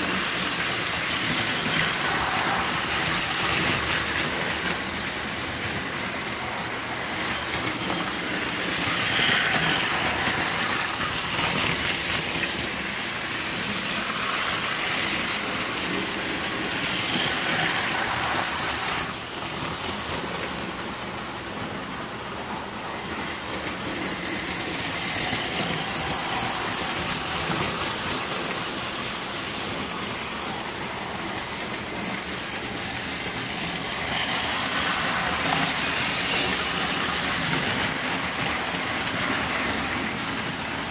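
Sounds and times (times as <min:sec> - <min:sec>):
toy trains rumbling on metal track: 0:00.0 - 0:40.9.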